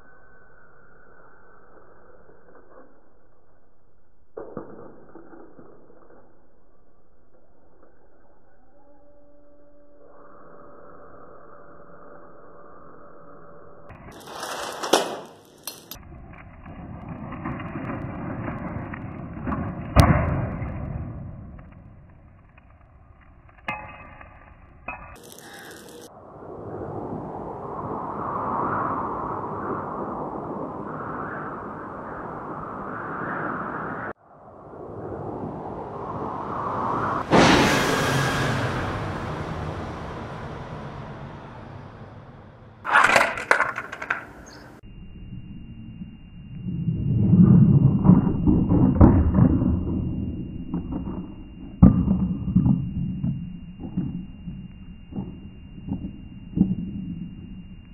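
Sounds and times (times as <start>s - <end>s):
sharp cracks and clatters: 1.7s - 8.2s, 13.9s - 26.2s, 42.8s - 44.8s
fire crackling: 14.0s - 34.0s
toy car crash: 14.1s - 16.0s, 25.1s - 26.1s, 42.8s - 44.8s
sharp loud bang: 37.2s - 40.5s.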